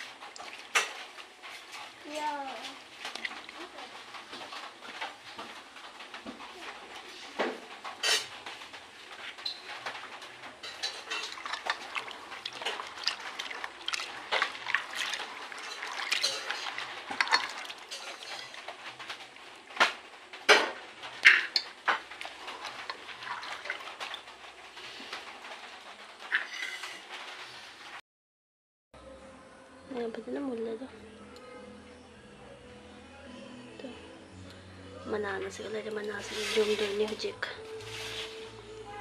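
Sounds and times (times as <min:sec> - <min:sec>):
water sloshing in a pot: 0:00.0 - 0:25.6, 0:35.2 - 0:38.5.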